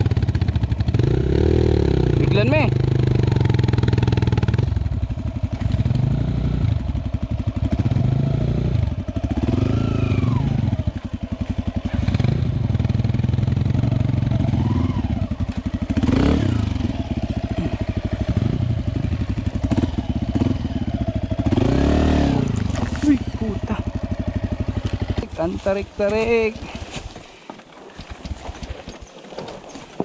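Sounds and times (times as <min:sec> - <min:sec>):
dirt bike engine revving: 0:00.0 - 0:26.7.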